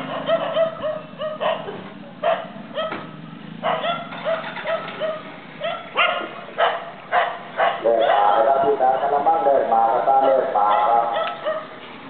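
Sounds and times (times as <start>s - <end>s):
small dog yelping: 0.0s - 8.6s, 10.7s - 11.7s.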